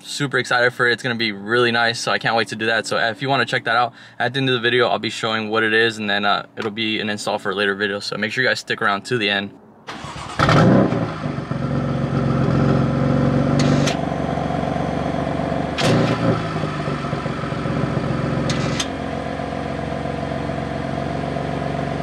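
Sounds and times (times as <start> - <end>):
car engine idling: 9.9 - 22.0
car engine revving: 9.9 - 22.0.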